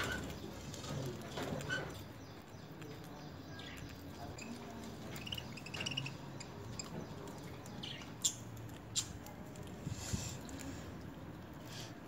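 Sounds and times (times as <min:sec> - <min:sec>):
beaks nibbling greens: 0:00.0 - 0:12.0
budgerigars chirping: 0:03.5 - 0:09.1.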